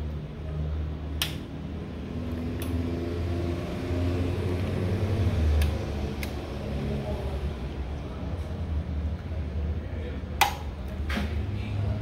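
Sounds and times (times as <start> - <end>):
rotary switch clicks: 1.2 - 1.5.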